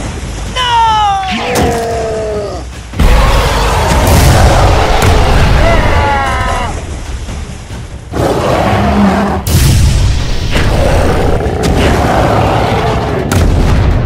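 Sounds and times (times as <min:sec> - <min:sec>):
boom: 0:03.0 - 0:05.8.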